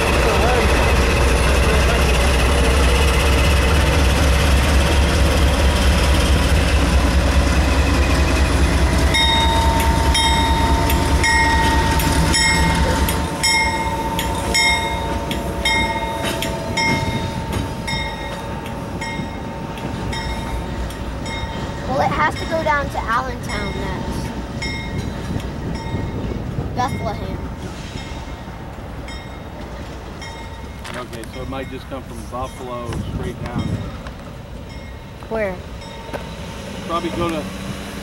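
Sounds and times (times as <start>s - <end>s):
diesel locomotives rumbling: 0.0s - 38.0s
crossing bell ringing: 8.4s - 37.0s.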